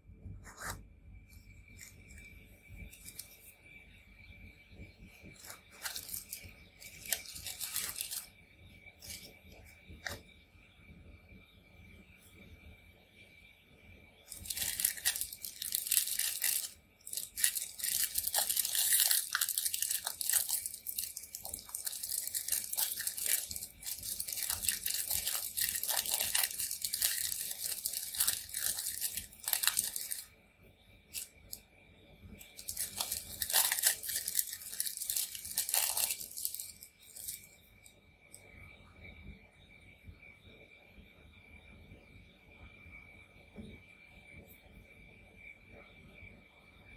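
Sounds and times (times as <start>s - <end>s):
foil wrapper crinkling: 1.7s - 3.4s, 5.2s - 8.3s, 9.0s - 10.2s, 14.3s - 30.3s, 31.1s - 31.6s, 32.4s - 37.5s.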